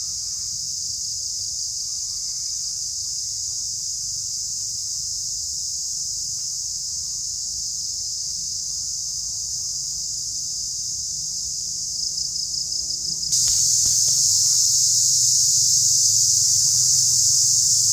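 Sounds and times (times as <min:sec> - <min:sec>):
high-pitched insect chorus: 0:00.0 - 0:17.9.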